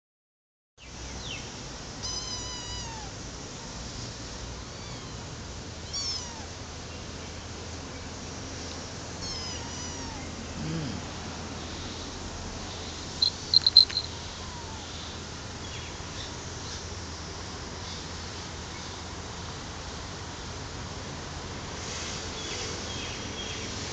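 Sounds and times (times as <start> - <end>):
high-pitched kitten chirps: 2.0 - 3.2, 4.6 - 6.6, 9.2 - 10.3, 13.2 - 15.0
kittens mewing: 2.0 - 3.2, 4.6 - 6.6, 9.2 - 11.2, 13.2 - 15.0.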